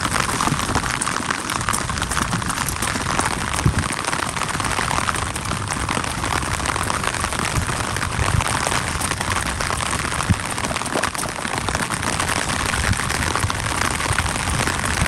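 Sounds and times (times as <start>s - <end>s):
rain drops pattering: 0.0s - 15.0s.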